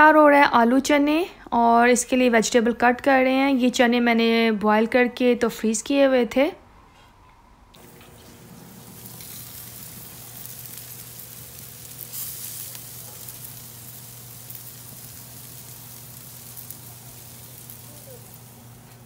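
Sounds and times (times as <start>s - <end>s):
chicken sizzling on a grill: 7.8s - 19.0s.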